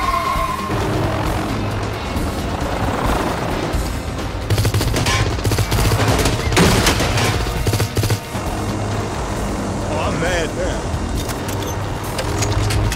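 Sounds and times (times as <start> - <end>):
automatic gunfire bursts: 4.5 - 8.3
low steady drone: 8.2 - 12.9.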